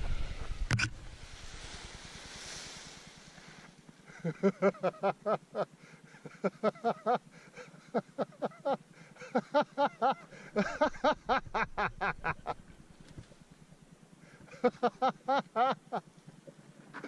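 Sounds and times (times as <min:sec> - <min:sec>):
person laughing hard: 0:04.1 - 0:12.6, 0:14.4 - 0:16.0.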